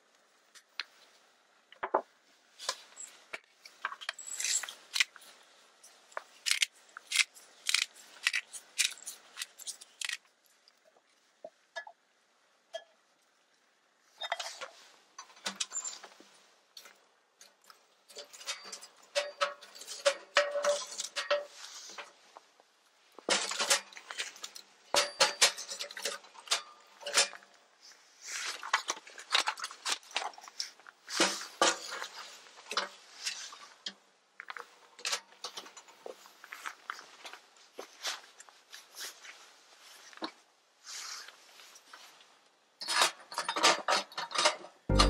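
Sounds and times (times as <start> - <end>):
metal cookware clinking: 24.9 - 27.4.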